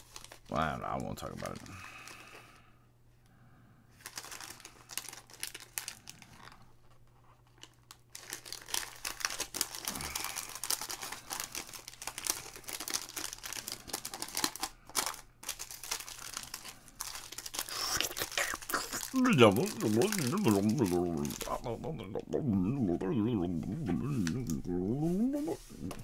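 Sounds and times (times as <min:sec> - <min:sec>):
foil wrapper crinkling and tearing: 0:00.0 - 0:02.3, 0:04.0 - 0:22.0.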